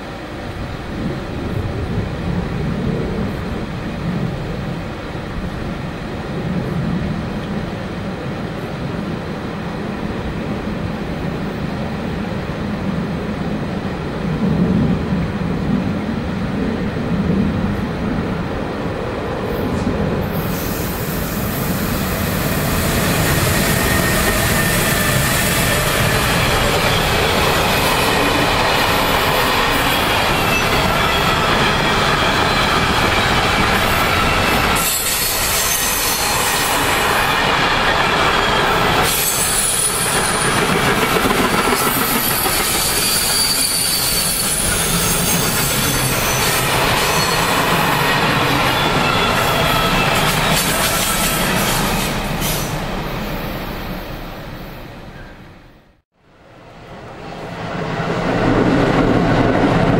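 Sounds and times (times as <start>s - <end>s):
train wheels rumbling on rails: 0.0s - 55.4s, 56.6s - 59.9s
high-pitched wheel squeal: 41.8s - 52.8s.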